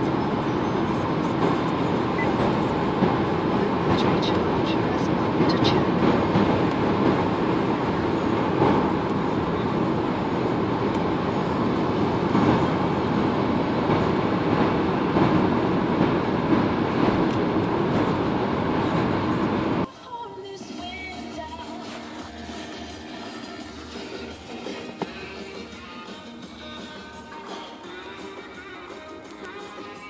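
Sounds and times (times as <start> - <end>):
road and wind noise: 0.0 - 19.9.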